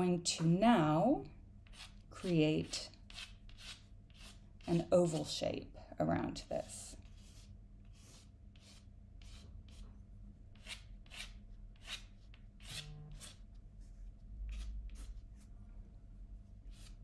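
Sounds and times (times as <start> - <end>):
pencil scratching on paper: 1.7 - 2.5, 3.1 - 5.3, 7.0 - 9.9.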